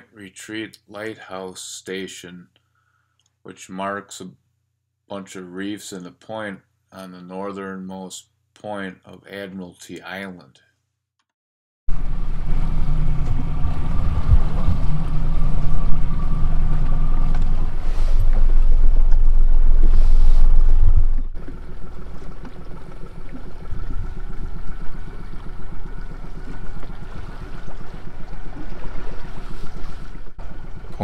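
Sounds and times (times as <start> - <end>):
boat motor running: 11.9 - 31.0
water: 11.9 - 31.0
wind: 11.9 - 31.0.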